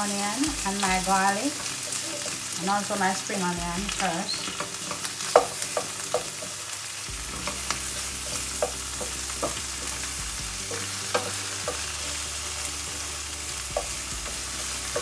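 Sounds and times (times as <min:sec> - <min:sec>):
onion sizzling in hot oil: 0:00.0 - 0:15.0.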